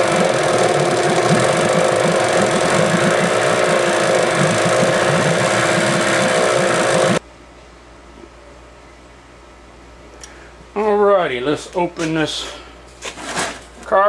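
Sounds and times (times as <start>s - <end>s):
outboard engine running: 0.0s - 7.2s.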